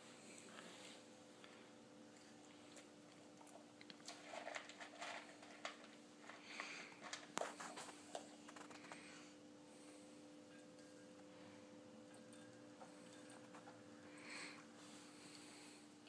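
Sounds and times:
plastic cups rustling and clicking: 2.7 - 9.1, 12.1 - 13.9.

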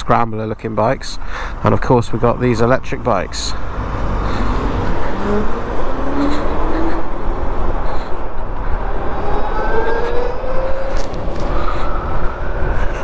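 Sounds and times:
wind rushing over microphone: 3.6 - 13.0.

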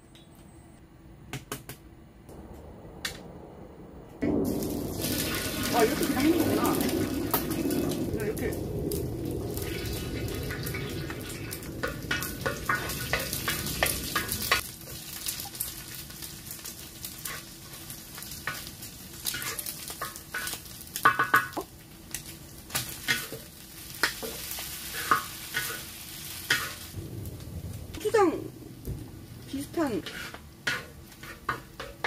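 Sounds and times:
eggs frying hiss: 4.2 - 32.0
wooden spatula scraping a wok: 17.1 - 21.6, 22.9 - 27.0, 29.5 - 32.0.

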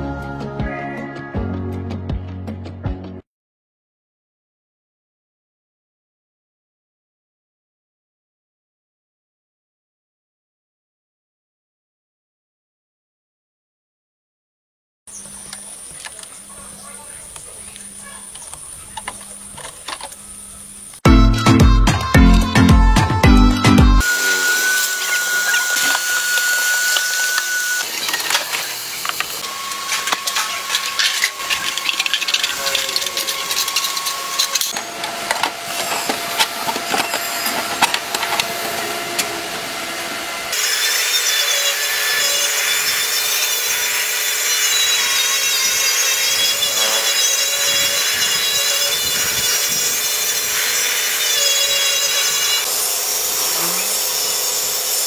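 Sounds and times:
rotary sander scraping metal: 24.0 - 55.0.

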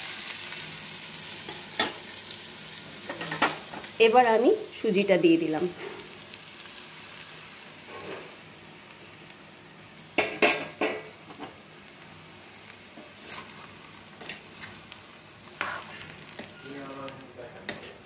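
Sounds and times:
food sizzling in oil: 0.0 - 18.0
spatula scraping a pan: 7.8 - 8.4, 12.9 - 16.8, 17.7 - 18.0.

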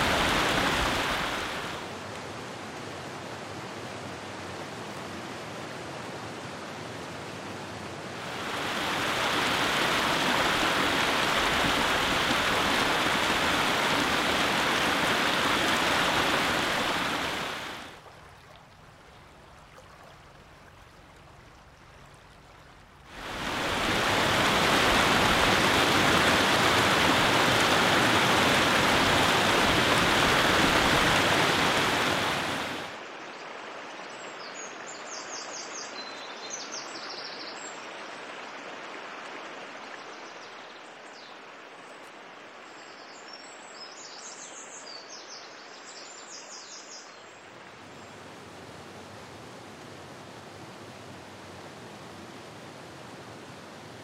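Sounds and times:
waterfall rushing: 0.0 - 1.9, 8.2 - 18.0, 23.1 - 33.0
creek flowing over rocks: 0.0 - 42.7.

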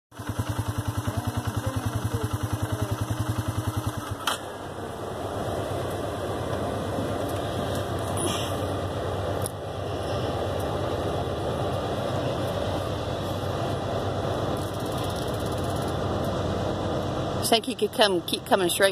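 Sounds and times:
engine idling: 0.1 - 18.9
steady rushing noise: 0.6 - 18.9
engine cut-off click: 3.6 - 4.5.

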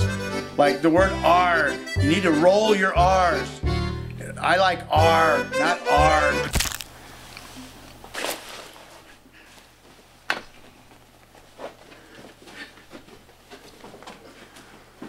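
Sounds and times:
soft footsteps on floor: 7.5 - 15.0.

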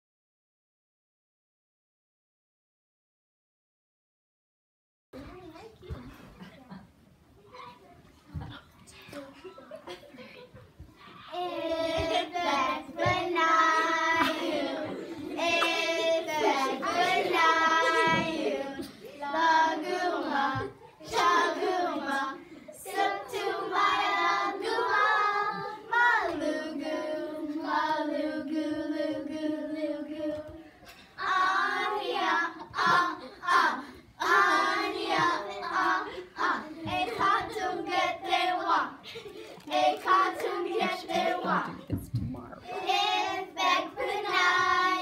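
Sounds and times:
girls singing together: 9.4 - 45.0.

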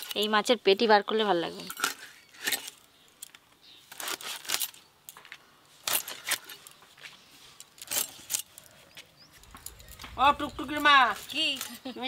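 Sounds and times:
light metallic clinks: 9.4 - 12.0.

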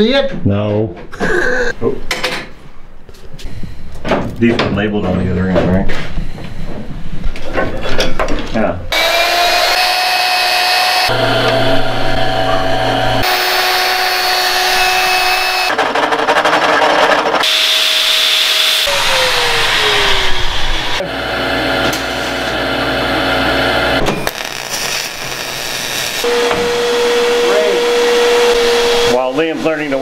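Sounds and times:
power tool motor winding down: 8.9 - 16.2, 17.4 - 29.2
portable band saw running: 8.9 - 29.2
welding crackle: 24.2 - 26.3.

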